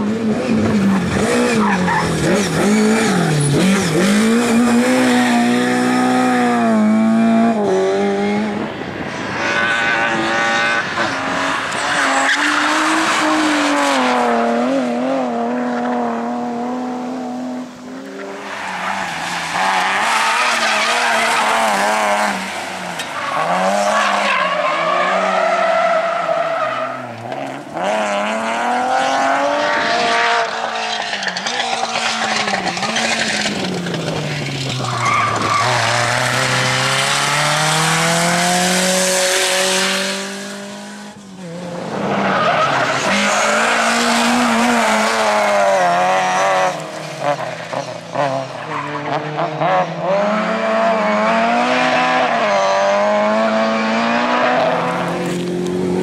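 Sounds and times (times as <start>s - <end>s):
rally car engines revving: 0.0s - 56.0s
tyres squealing and skidding: 0.8s - 4.3s, 10.8s - 13.8s, 18.2s - 27.4s, 29.7s - 37.2s, 42.1s - 49.2s.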